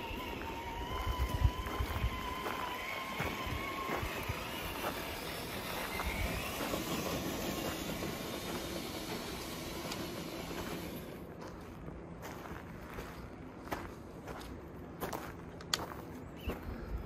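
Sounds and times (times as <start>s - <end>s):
electric motor whining: 0.0s - 11.2s
wheels over dirt and gravel: 0.0s - 12.4s.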